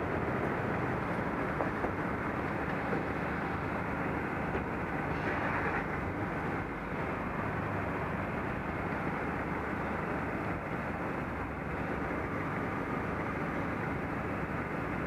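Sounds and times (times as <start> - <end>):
city street traffic rumble: 0.0 - 15.0.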